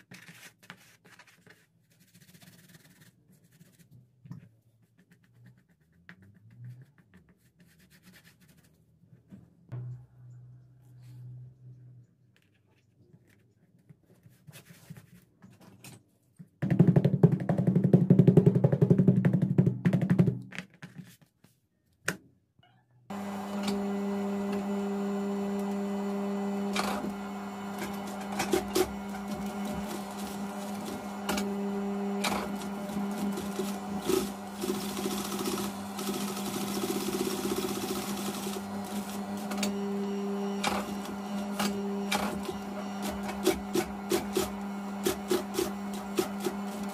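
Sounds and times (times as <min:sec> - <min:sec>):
sewing machine motor humming: 0:23.1 - 0:46.9
sewing machine stitching: 0:23.1 - 0:46.9.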